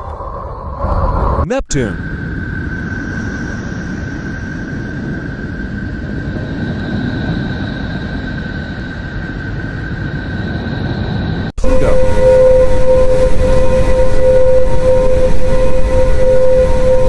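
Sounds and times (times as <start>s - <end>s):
thin high whistle: 11.6s - 17.0s.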